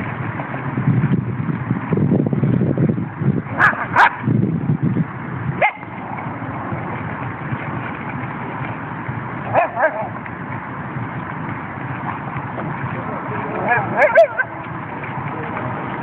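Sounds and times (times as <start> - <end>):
steady background rush: 0.0 - 16.0
dog barking and yipping: 3.6 - 4.2, 5.6 - 5.9, 9.5 - 10.1, 14.0 - 14.6.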